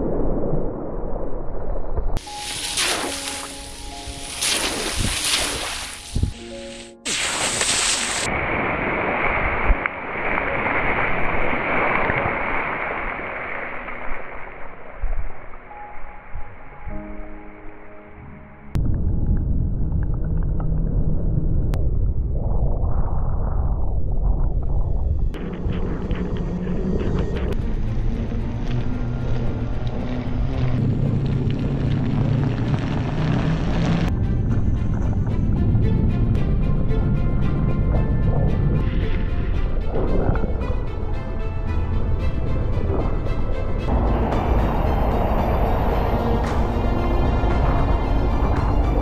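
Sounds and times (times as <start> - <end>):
wheels splashing through puddle: 2.2 - 14.9
tyres on wet road: 25.4 - 36.2, 40.4 - 49.0
electric unicycle humming: 25.4 - 49.0.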